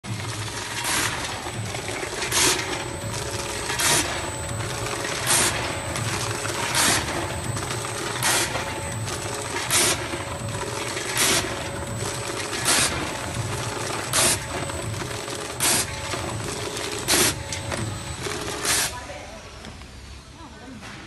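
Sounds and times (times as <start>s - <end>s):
packing machine humming: 0.0s - 20.0s
machine jaws sealing bags: 0.1s - 19.0s.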